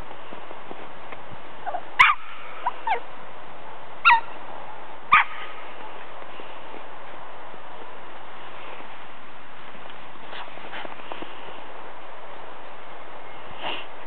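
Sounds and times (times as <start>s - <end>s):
steady background hiss: 0.0s - 14.0s
puppies yipping: 1.6s - 3.1s, 4.0s - 4.3s.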